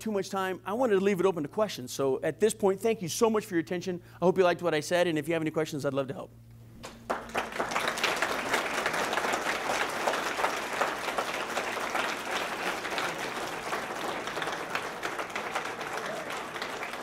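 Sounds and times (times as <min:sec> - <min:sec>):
audience applauding: 0:06.8 - 0:17.0.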